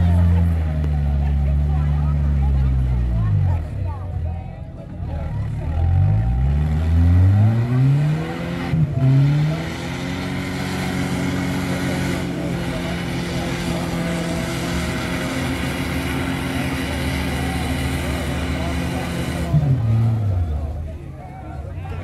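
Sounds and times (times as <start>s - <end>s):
engine revving hard: 5.7s - 20.7s.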